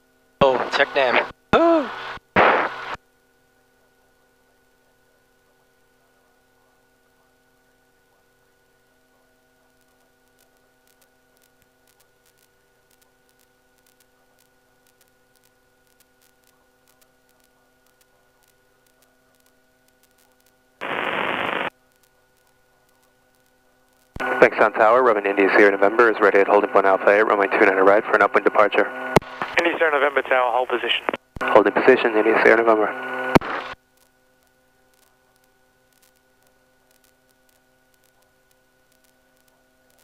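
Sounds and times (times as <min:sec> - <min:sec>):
faint electrical hum: 0:00.0 - 0:40.0
burst of radio static: 0:00.4 - 0:03.0, 0:10.9 - 0:33.9
faint clicks: 0:09.8 - 0:20.6.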